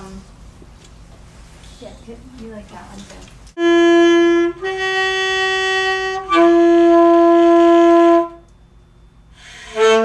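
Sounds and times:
alto saxophone long notes: 0:03.6 - 0:08.5, 0:09.4 - 0:10.0.

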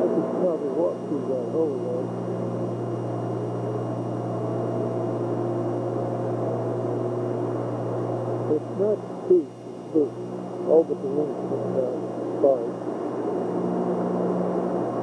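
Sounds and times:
hangar room hum: 0:00.0 - 0:15.0.

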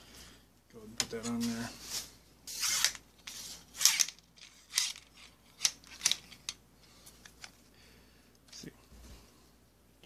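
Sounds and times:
fishing reel clicks and scrapes: 0:02.5 - 0:06.3.

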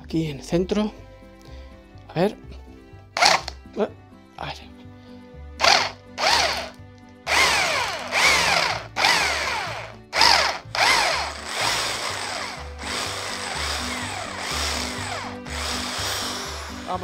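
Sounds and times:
electric drill drilling metal: 0:03.2 - 0:03.6, 0:05.6 - 0:17.0.

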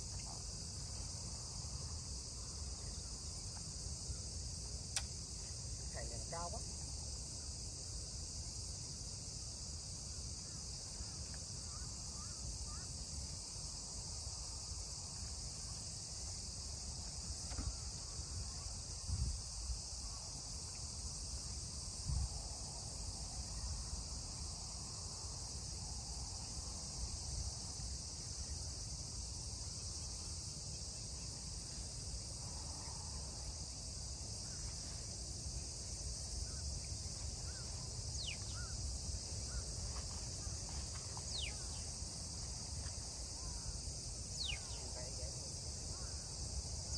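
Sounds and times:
crickets chirring: 0:00.0 - 0:46.9.

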